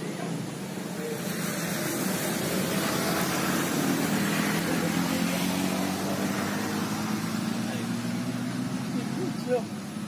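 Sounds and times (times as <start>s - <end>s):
vehicle engine running: 0.0s - 10.0s.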